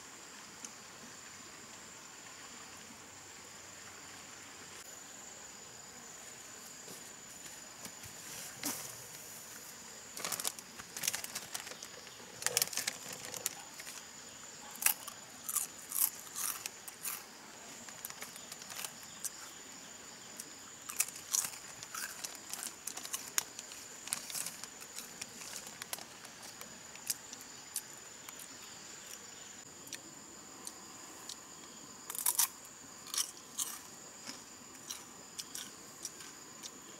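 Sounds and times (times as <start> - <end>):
high insect drone: 0.0 - 36.9
foil snack bag crinkling: 10.1 - 14.1, 17.8 - 19.3, 20.9 - 27.2
potato chips crunching: 10.2 - 14.0, 14.8 - 17.2, 17.8 - 19.0, 20.9 - 27.2, 32.1 - 32.5, 33.1 - 33.8.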